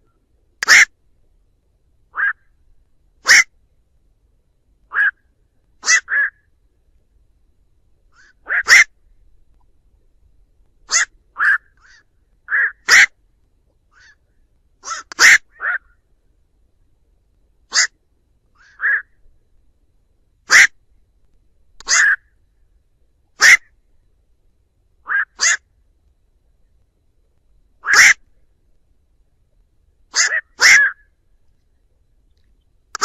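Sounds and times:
night heron calls: 0:00.6 - 0:00.9, 0:02.1 - 0:02.5, 0:03.2 - 0:03.5, 0:04.9 - 0:05.2, 0:05.8 - 0:06.5, 0:08.1 - 0:09.0, 0:10.8 - 0:13.2, 0:13.9 - 0:14.2, 0:14.8 - 0:16.0, 0:17.7 - 0:18.0, 0:18.6 - 0:19.2, 0:20.5 - 0:20.8, 0:21.8 - 0:22.4, 0:23.4 - 0:23.7, 0:25.0 - 0:25.7, 0:27.8 - 0:28.3, 0:30.1 - 0:31.2.

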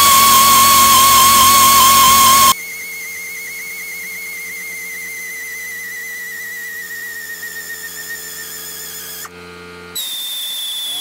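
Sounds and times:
high whine with fast wobble: 0:00.0 - 0:02.6.

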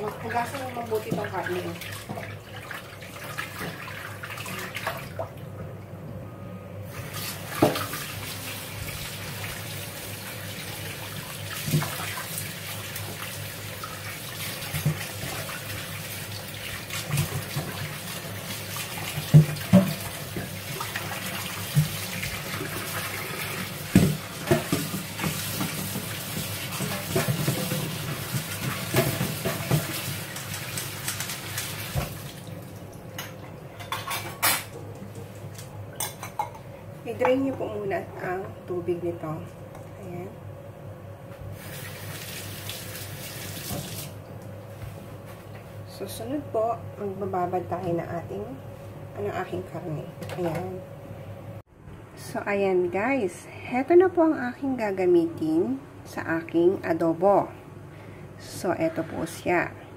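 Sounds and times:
tap water running into sink: 0:07.0 - 0:33.4, 0:41.6 - 0:44.2.

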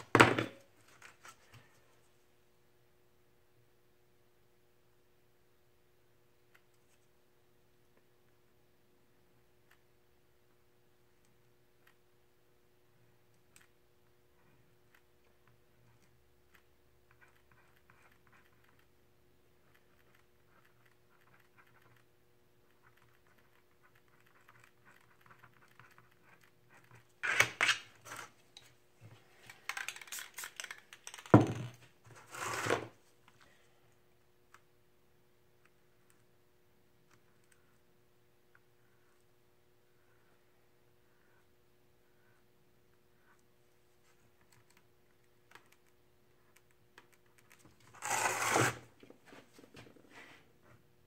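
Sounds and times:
clattering and handling noise: 0:00.0 - 0:02.0, 0:26.8 - 0:33.6, 0:47.0 - 0:50.9
hand tool scraping paint: 0:48.0 - 0:49.0.

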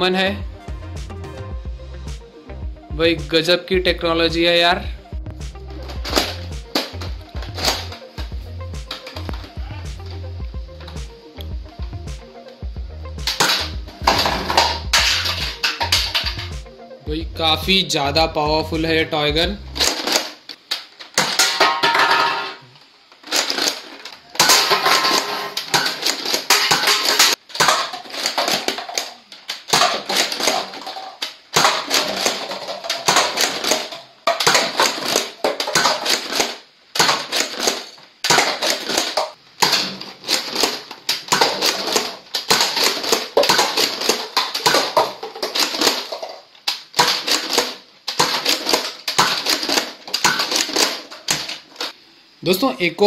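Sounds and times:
paper cups clattering: 0:13.3 - 0:16.6, 0:19.8 - 0:22.6, 0:23.2 - 0:52.0
plastic blaster mechanism clacking: 0:23.1 - 0:52.0.

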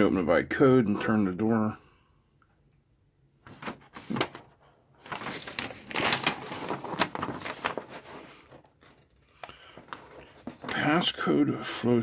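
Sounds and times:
paper rustling and crackling: 0:03.5 - 0:11.3.

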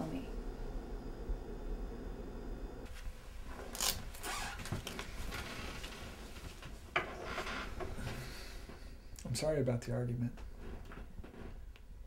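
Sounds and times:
rustling and handling noises: 0:02.9 - 0:08.2.

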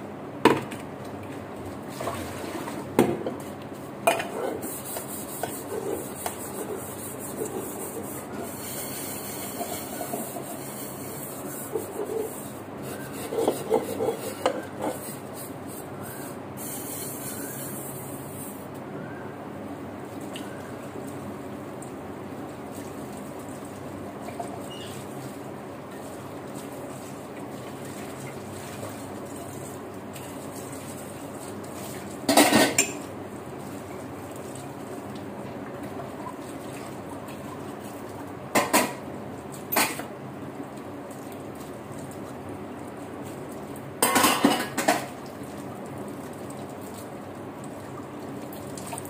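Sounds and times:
dishes and utensils clattering: 0:13.2 - 0:15.0, 0:32.3 - 0:33.1, 0:38.6 - 0:39.0, 0:39.7 - 0:40.0, 0:44.0 - 0:45.1.

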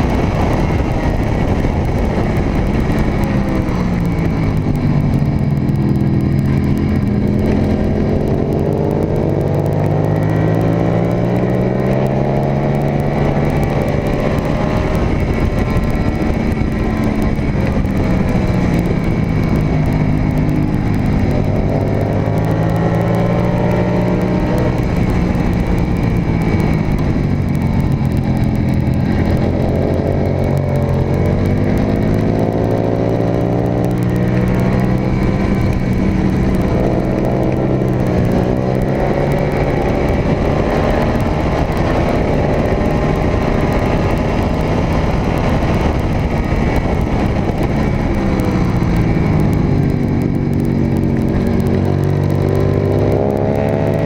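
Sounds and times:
motorcycle engine revving: 0:00.0 - 0:54.0
wind noise on microphone: 0:00.0 - 0:54.0.

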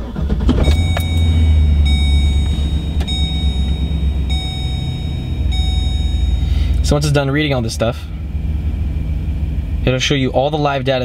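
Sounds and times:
truck engine idling: 0:00.0 - 0:11.0
electronic warning chime: 0:00.6 - 0:07.0.

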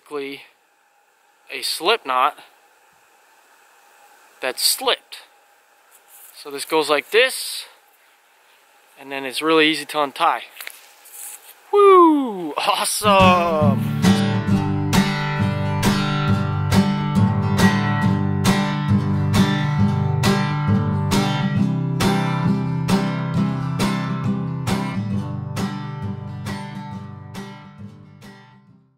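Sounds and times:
acoustic guitar strumming: 0:13.0 - 0:28.9.

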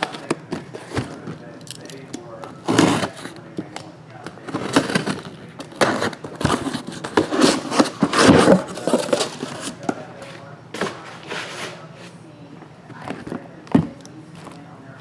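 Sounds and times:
cardboard and plastic crinkling: 0:02.6 - 0:11.8.

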